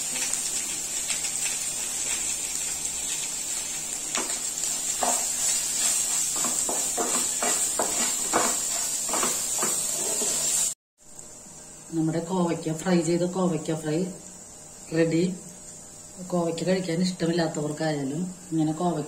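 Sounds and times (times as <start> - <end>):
vegetables sizzling in oil: 0.0 - 19.0
wooden spatula scraping a pan: 4.1 - 10.7.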